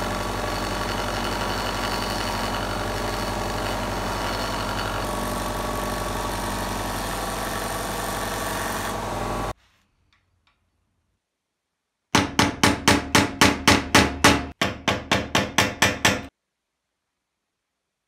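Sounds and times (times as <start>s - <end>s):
hammer striking metal punch: 12.2s - 16.3s.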